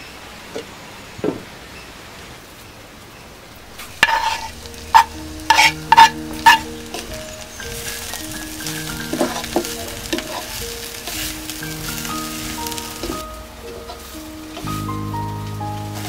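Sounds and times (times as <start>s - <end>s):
vegetables frying in a pot: 3.6s - 16.0s.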